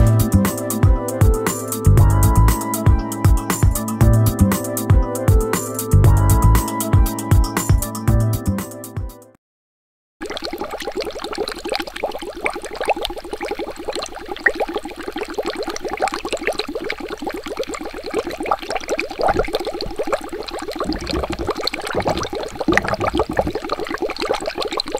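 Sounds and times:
water bubbling: 10.2s - 24.9s
deep gurgles: 15.4s - 24.9s.

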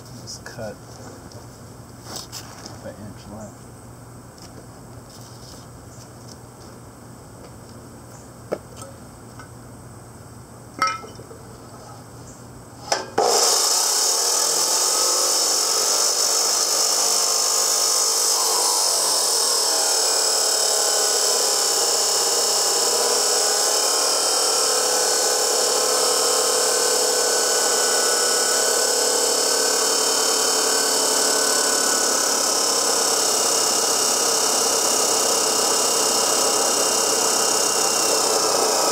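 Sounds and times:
chop saw cutting steel: 12.9s - 38.9s.

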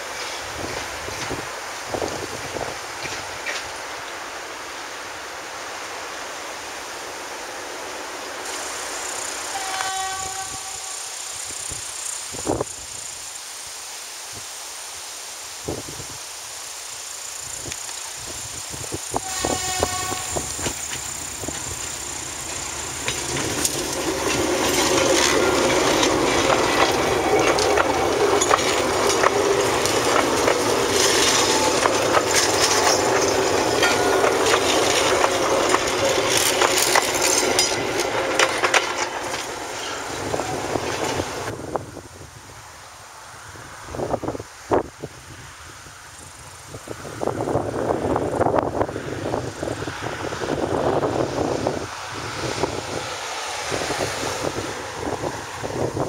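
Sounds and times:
wheels clicking over rail joints: 0.0s - 4.2s, 18.8s - 41.6s
train horn: 9.4s - 11.2s, 19.2s - 20.8s
diesel locomotive engine running: 19.2s - 41.6s.

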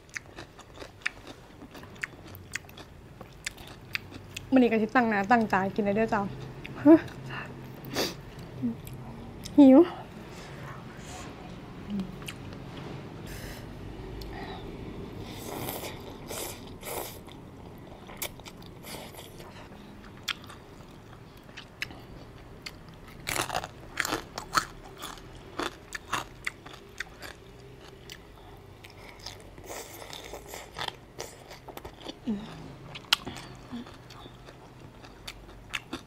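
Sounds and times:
crunchy chewing: 0.0s - 4.5s, 15.3s - 36.0s.

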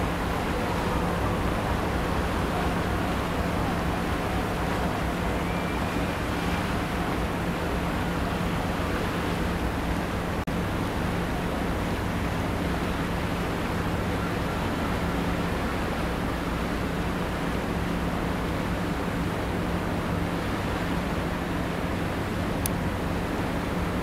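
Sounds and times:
low ship hum: 0.0s - 24.0s
wind and sea wash: 0.0s - 24.0s.

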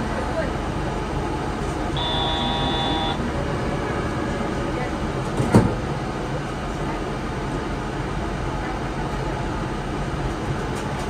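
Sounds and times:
train rumbling along guideway: 0.0s - 11.0s.

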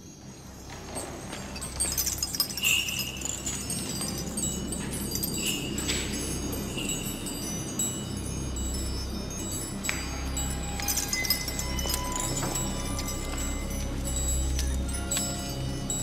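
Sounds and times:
tinkling chimes: 0.0s - 16.0s.

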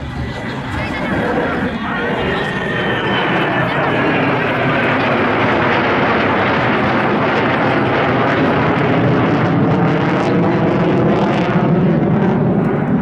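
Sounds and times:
jet engine roar overhead: 0.0s - 13.0s.

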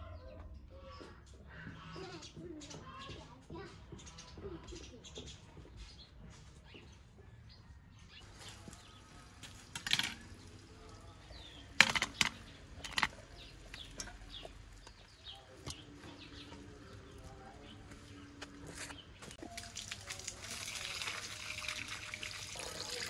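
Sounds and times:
birds chirping: 0.0s - 23.0s
metal colander clattering on stone: 9.4s - 10.6s, 11.3s - 14.4s.

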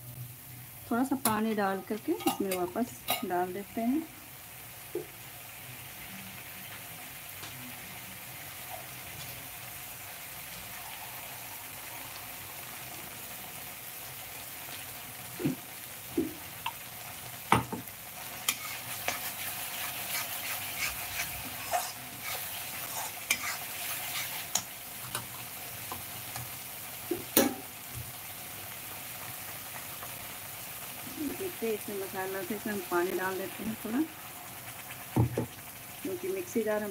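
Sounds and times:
paste sizzling and crackling: 0.0s - 36.9s
metal spoon clinking on pan: 2.2s - 3.4s.

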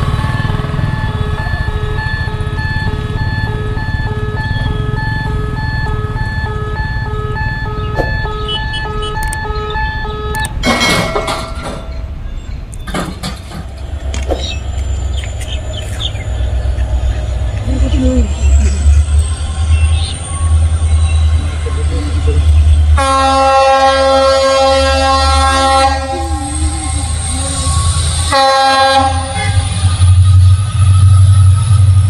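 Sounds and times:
electronic beeping: 0.4s - 10.6s
scattered clicks: 9.1s - 9.5s, 10.3s - 10.6s
steady low rumble: 13.4s - 28.4s.

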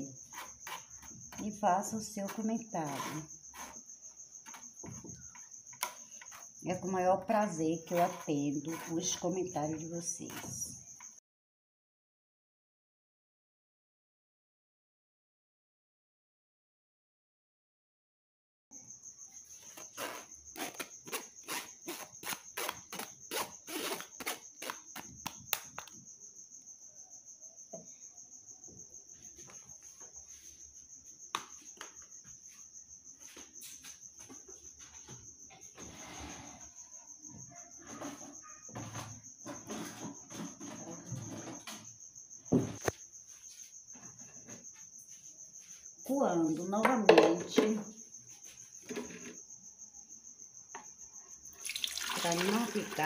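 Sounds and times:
containers knocking on stone counter: 46.8s - 47.9s.

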